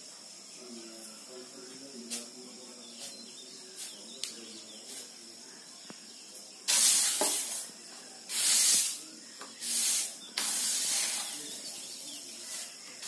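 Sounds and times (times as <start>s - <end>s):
seeds rattling on bamboo tray: 6.7s - 7.7s, 8.3s - 13.0s.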